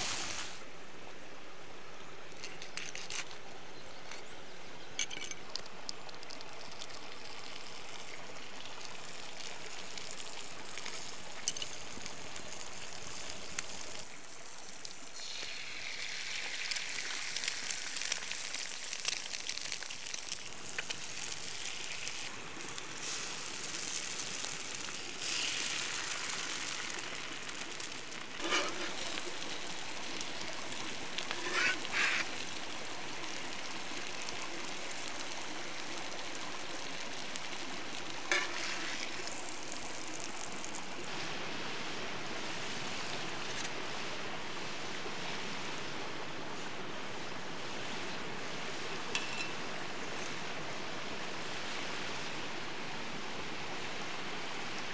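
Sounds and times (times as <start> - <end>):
eggs sizzling on griddle: 0.0 - 0.6, 5.5 - 41.2, 49.1 - 50.4.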